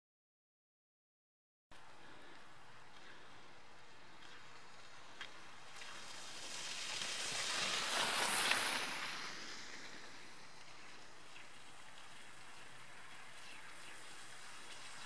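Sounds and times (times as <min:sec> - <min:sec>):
skis scraping over snow: 0:02.0 - 0:15.0.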